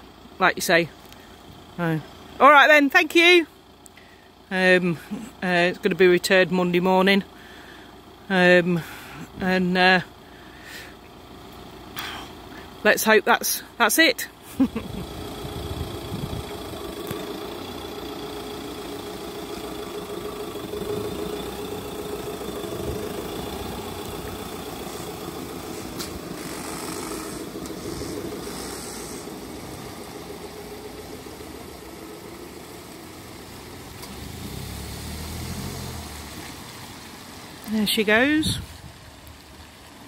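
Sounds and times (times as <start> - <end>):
van engine driving away: 0.0 - 40.0
low rumble: 14.6 - 35.0.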